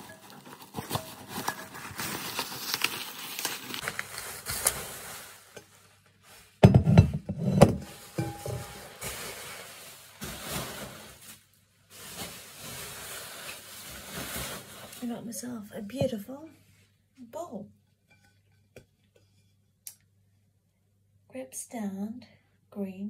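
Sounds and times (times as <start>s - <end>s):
bubble wrap crinkling: 0.0s - 6.6s, 7.8s - 15.6s
bowl knocking and thudding: 6.6s - 8.8s.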